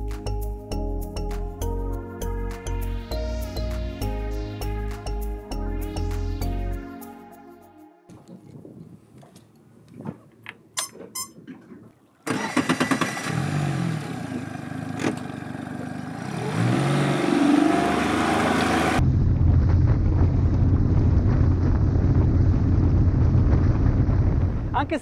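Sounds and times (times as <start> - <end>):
outboard motor running: 12.3 - 16.4.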